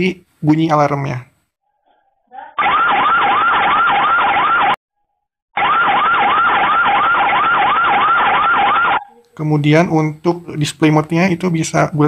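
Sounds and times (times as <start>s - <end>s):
whooping alarm siren: 2.6s - 4.8s, 5.6s - 9.1s.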